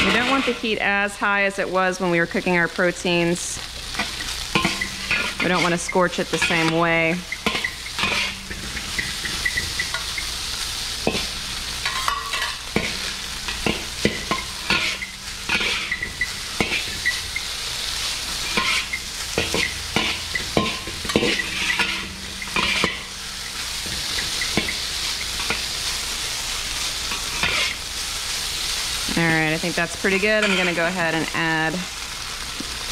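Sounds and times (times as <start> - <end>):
metal spatulas scraping a wok: 0.0 - 0.9, 3.8 - 10.3, 11.0 - 26.0, 26.8 - 28.4, 30.1 - 31.3
rice frying in a wok: 0.0 - 32.9.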